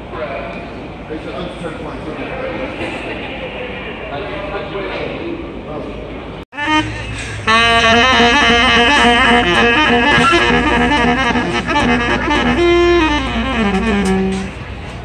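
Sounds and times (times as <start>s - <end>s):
baritone saxophone solo: 6.5s - 14.8s.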